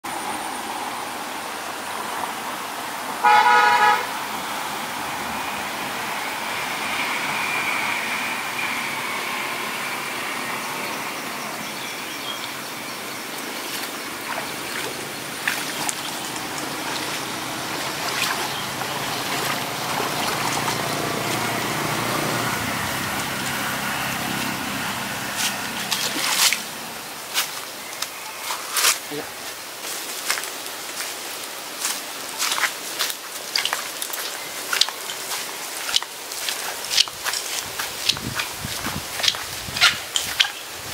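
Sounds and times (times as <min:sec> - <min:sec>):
distant road traffic hum: 0:00.0 - 0:40.9
water sloshing from wading: 0:13.2 - 0:27.7, 0:32.4 - 0:40.9
splashes: 0:13.3 - 0:27.7, 0:31.8 - 0:40.9.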